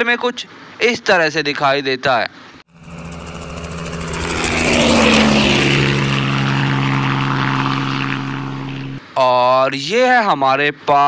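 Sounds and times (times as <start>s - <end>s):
helicopter turbine and rotor: 2.7s - 9.0s.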